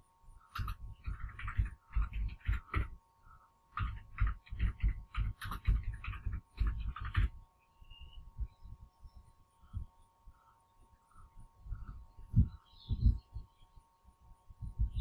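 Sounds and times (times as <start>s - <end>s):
computer keyboard typing: 0.5s - 3.0s, 3.7s - 7.4s.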